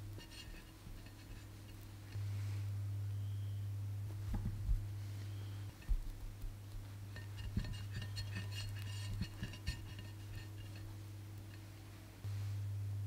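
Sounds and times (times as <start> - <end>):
spatula smearing ganache: 0.0 - 2.2, 5.8 - 11.7
low electrical hum: 0.0 - 13.0
soft knocks: 4.2 - 4.9.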